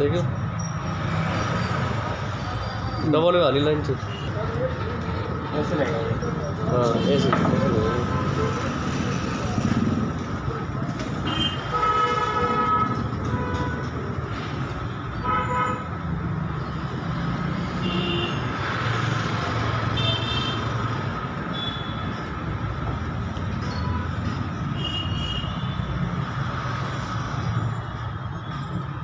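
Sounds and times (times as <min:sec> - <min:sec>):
low traffic rumble: 0:00.0 - 0:29.0
vehicle horns honking: 0:11.2 - 0:13.9, 0:15.2 - 0:15.9, 0:17.8 - 0:18.5, 0:20.0 - 0:20.7, 0:21.5 - 0:22.1.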